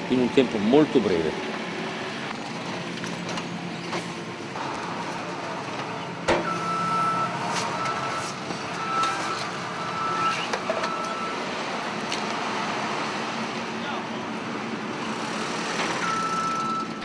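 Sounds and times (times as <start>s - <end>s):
engine running: 0.0s - 17.0s
reversing alarm beeping: 6.4s - 11.5s, 16.0s - 17.0s.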